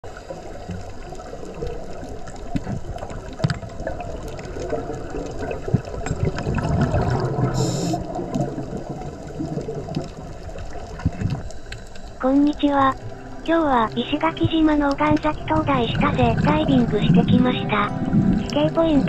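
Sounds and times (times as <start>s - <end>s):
underwater bubbles gurgling: 0.0s - 19.0s
short hiss: 7.6s - 8.0s.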